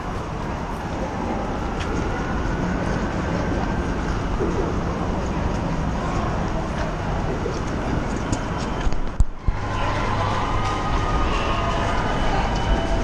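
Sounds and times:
wind and road noise: 0:00.0 - 0:13.0.

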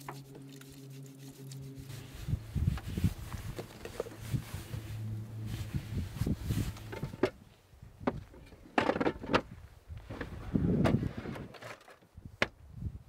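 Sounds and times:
low steady hum: 0:00.0 - 0:10.8.

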